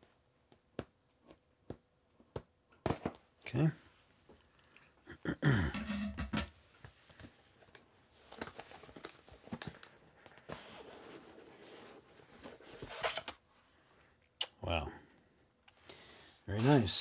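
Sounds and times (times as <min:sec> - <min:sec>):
cardboard scrape: 0:10.5 - 0:13.3.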